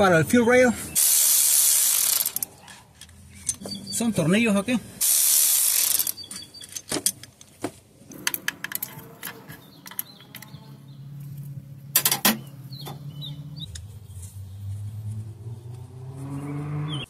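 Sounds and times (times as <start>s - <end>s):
tools and bolts clinking on metal: 2.1s - 3.9s, 5.8s - 13.9s
low steady hum: 8.0s - 15.2s.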